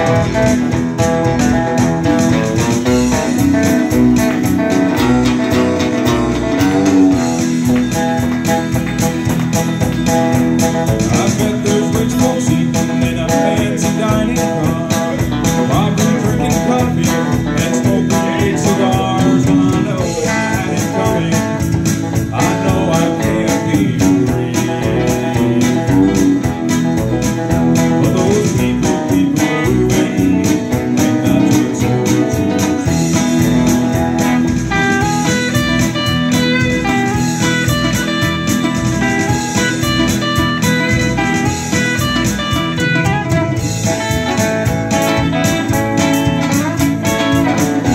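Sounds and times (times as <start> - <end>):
electric bass: 0.0 - 47.9
electric guitar: 0.0 - 47.9
strummed acoustic guitar: 0.0 - 47.9.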